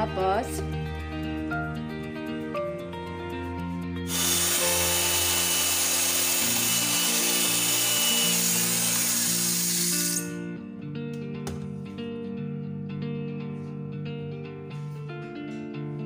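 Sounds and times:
background music: 0:00.0 - 0:16.0
electric hand mixer running: 0:04.1 - 0:10.4.

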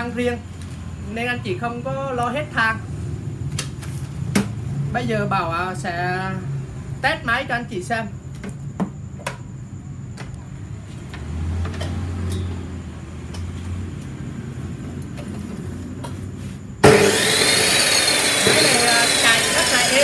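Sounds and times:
chop saw motor whining: 0:16.8 - 0:20.0.

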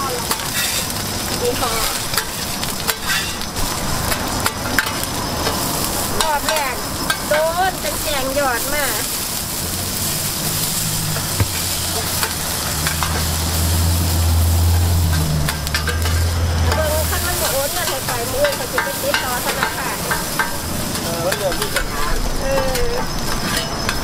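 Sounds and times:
pancake sizzling in oil: 0:00.0 - 0:24.0
metal spatulas scraping pan: 0:00.2 - 0:00.9, 0:01.8 - 0:03.5, 0:10.0 - 0:24.0.

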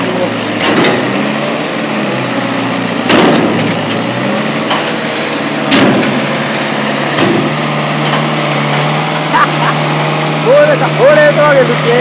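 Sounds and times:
log loader engine running: 0:00.0 - 0:12.0
loud knocks on steel bin: 0:03.1 - 0:03.8, 0:05.7 - 0:06.3, 0:07.1 - 0:08.9.

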